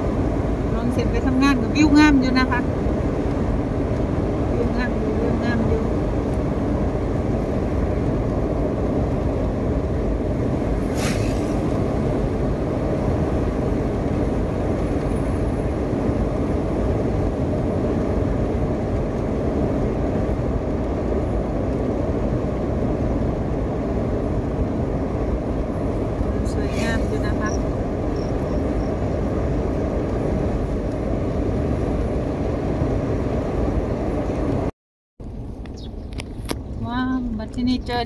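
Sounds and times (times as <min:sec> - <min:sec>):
car interior road noise: 0:00.0 - 0:38.0.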